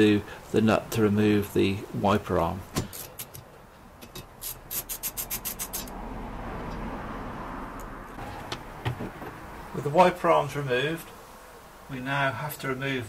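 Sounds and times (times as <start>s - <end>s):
steady rubbing: 4.4s - 5.9s.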